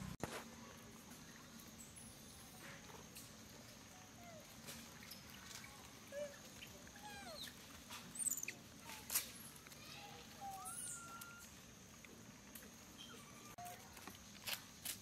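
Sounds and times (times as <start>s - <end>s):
animal squeaks and chirps: 6.6s - 8.6s, 10.4s - 11.5s.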